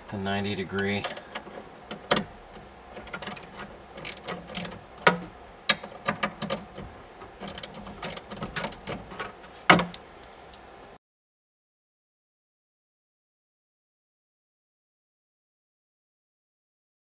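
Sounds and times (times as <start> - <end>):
hand ratchet clicking: 3.0 - 6.8, 7.4 - 9.3
tool clacking against hardware: 3.0 - 10.8.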